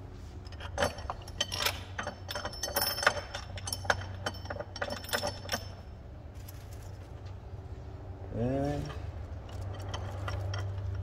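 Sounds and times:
steady low hum: 0.0s - 11.0s
metal hardware clinking: 0.4s - 6.5s, 8.8s - 11.0s.

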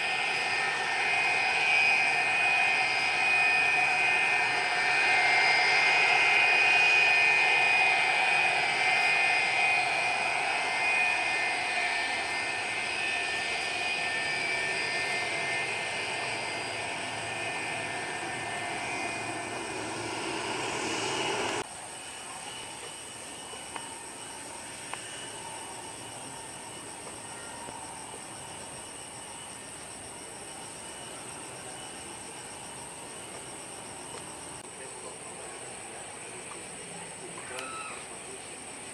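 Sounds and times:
jet engines whining: 0.0s - 21.7s.

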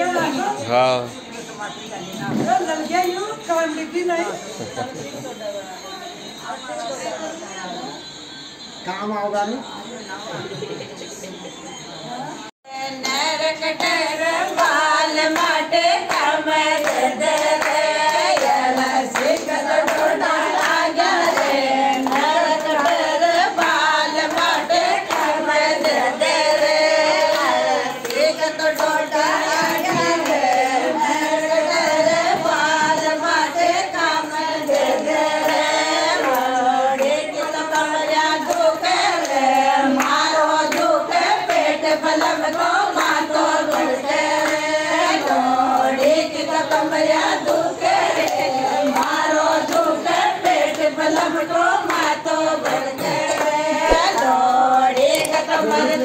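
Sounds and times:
women singing folk song: 12.7s - 56.0s
hand claps: 12.8s - 34.1s, 34.7s - 56.0s.

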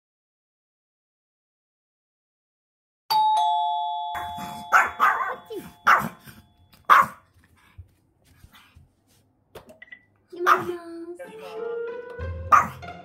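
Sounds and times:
two-tone doorbell chime: 3.1s - 6.7s
small dog barking: 4.2s - 7.2s, 10.4s - 10.8s, 12.5s - 12.8s.

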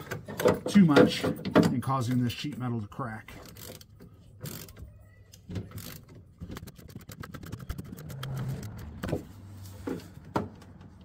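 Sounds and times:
hand ratchet clicking: 3.4s - 4.8s, 5.7s - 8.8s.

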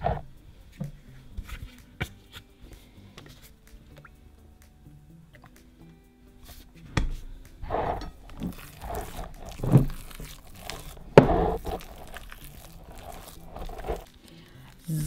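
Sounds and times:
slime squelching: 7.6s - 15.0s.

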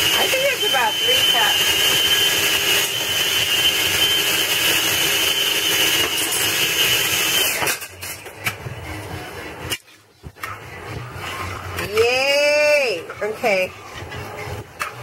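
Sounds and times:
food processor motor whining: 0.0s - 7.9s.

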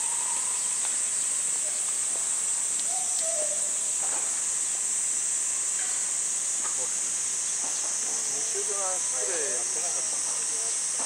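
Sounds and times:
cicadas droning: 0.0s - 11.0s.

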